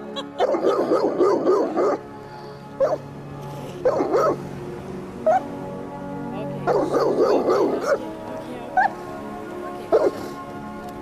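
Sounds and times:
background music: 0.0 - 11.0
dog barking and yelping: 0.4 - 2.0, 3.8 - 4.4, 6.7 - 8.0.

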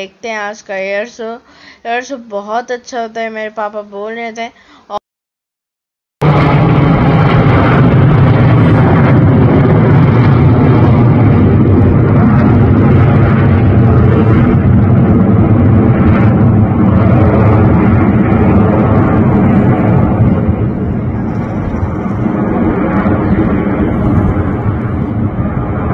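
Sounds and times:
jet engines roaring overhead: 6.2 - 25.9.

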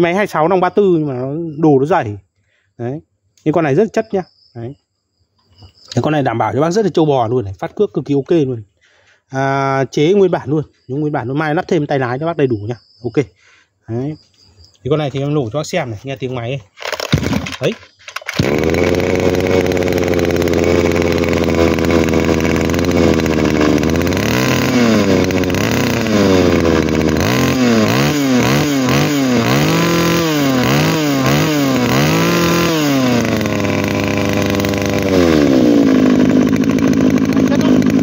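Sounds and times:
brush cutter engine revving: 16.8 - 38.0.

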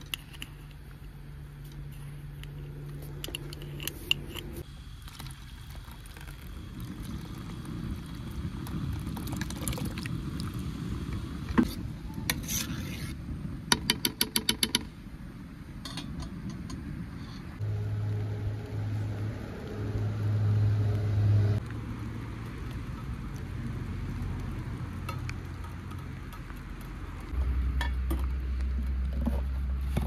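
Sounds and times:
low rumble: 15.2 - 30.0.

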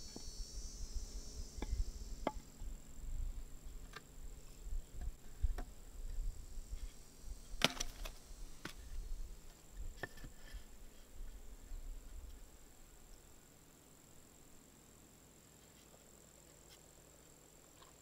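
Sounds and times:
faint steady high tone: 0.0 - 3.8.

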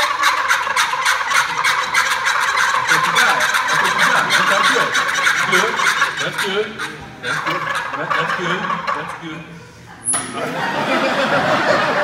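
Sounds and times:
turkey calls rattling gobbles: 0.0 - 9.4.

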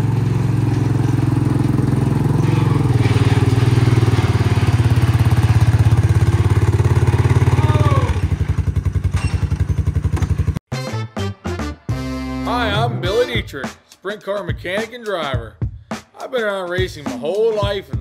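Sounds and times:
atv engine running: 0.0 - 10.6
brief squeak: 9.1 - 9.6.

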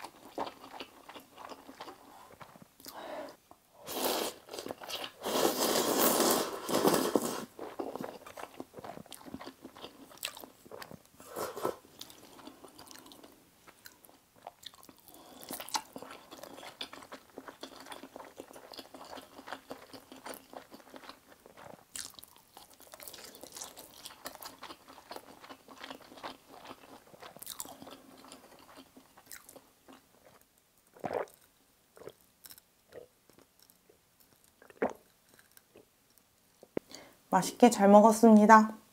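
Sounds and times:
soft chewing: 0.0 - 3.4, 6.7 - 37.0
loud slurp: 5.2 - 7.5.

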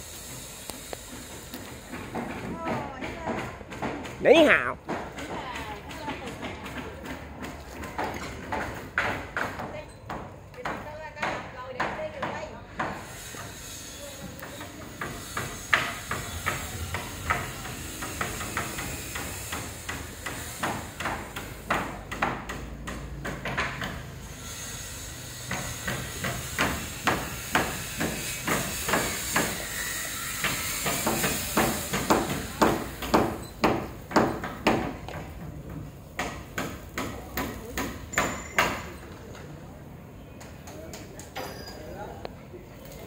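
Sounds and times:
hand tools knocking on masonry: 1.8 - 13.1, 30.4 - 39.0.

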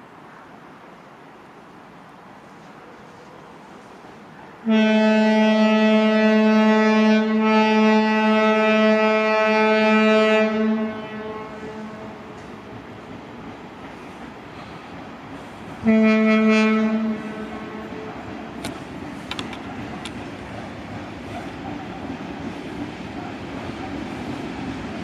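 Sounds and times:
train rumble: 0.0 - 25.0
train horn blast: 4.6 - 12.5, 15.8 - 18.3.

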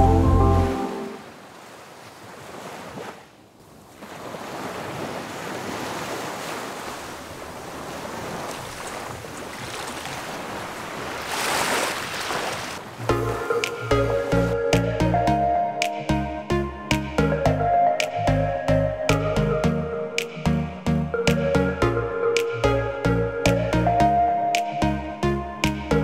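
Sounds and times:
background music: 0.0 - 1.2, 13.0 - 26.0
small waves washing onto sand: 0.7 - 13.9.

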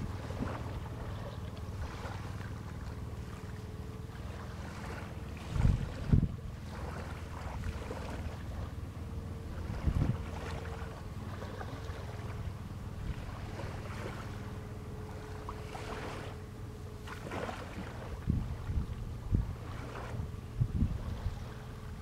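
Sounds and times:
boat engine idling: 0.0 - 22.0
faint steady whine: 0.0 - 22.0
wind thumping microphone: 5.4 - 6.4, 9.5 - 10.4, 18.0 - 21.6.

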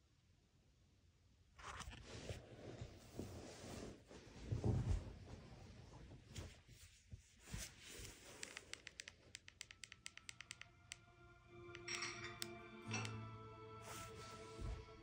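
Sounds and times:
remote control button clicks: 8.4 - 11.0.

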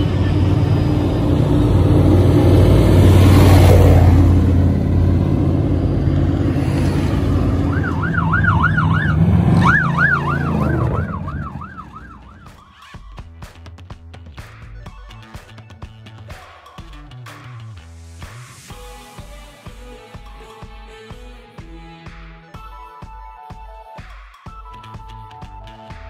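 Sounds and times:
truck engines passing: 0.0 - 12.7
siren yelping: 5.8 - 13.0.

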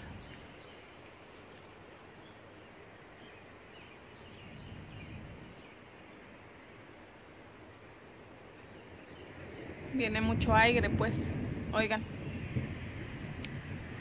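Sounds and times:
faint bird chirps: 0.0 - 10.1
wind hiss: 0.0 - 14.0
low thunder rumble: 8.8 - 14.0.

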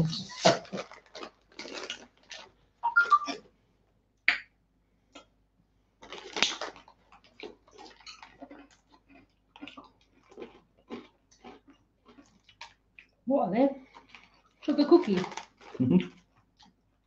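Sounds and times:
plastic bag tearing and crinkling: 0.3 - 2.5, 6.0 - 6.9, 14.7 - 15.8.

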